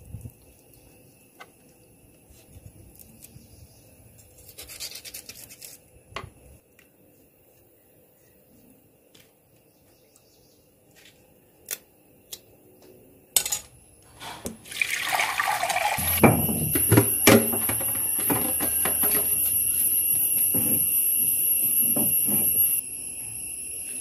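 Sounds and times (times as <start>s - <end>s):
water running and splashing: 14.2s - 18.3s
high-pitched whine: 16.0s - 24.0s
low hum: 16.0s - 24.0s.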